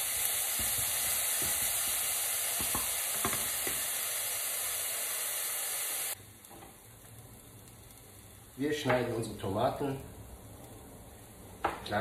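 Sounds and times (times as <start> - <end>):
garlic sizzling in hot oil: 0.0 - 12.0
wooden spoon knocking pan: 2.6 - 3.8.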